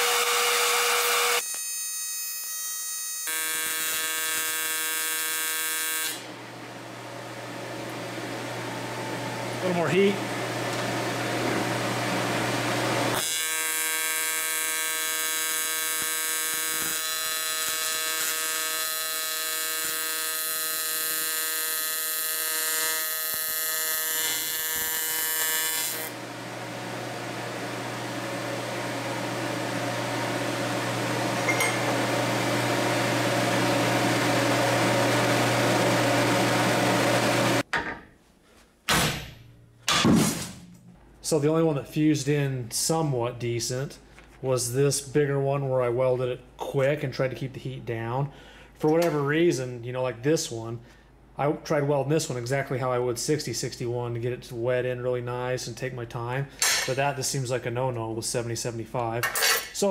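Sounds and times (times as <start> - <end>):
welding arc buzzing: 0.0 - 37.7
steady hum: 6.2 - 13.2.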